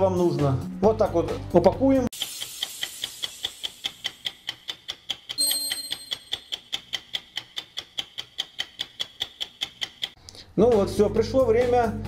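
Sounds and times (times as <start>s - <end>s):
clock ticking fast: 2.1s - 10.2s
brief ringing tone: 5.4s - 6.4s.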